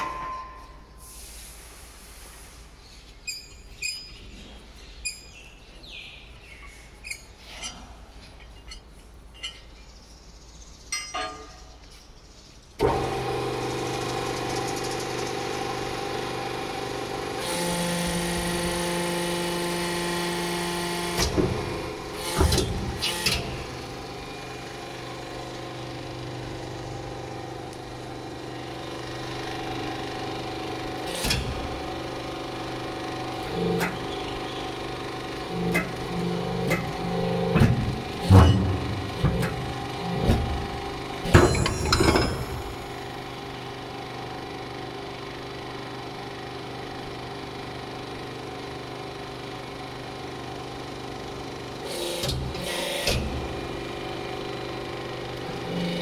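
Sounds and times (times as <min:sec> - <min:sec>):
hydraulic pump motor humming: 0:12.8 - 0:56.0
clamps knocking on metal: 0:41.3 - 0:42.8.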